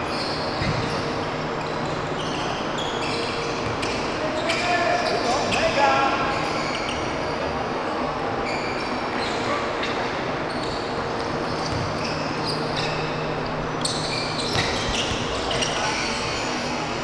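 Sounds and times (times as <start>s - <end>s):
sneaker squeaks: 0.0s - 17.0s
ball bouncing on court: 0.6s - 1.0s, 11.6s - 12.1s, 14.4s - 16.1s.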